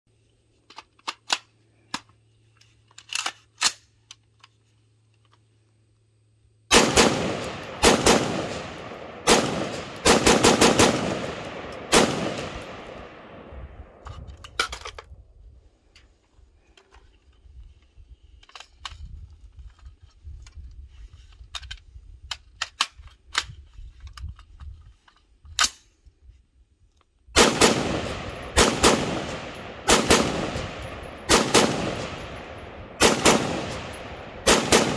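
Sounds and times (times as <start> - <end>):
rifle shots echoing: 6.7 - 14.0, 27.4 - 34.9.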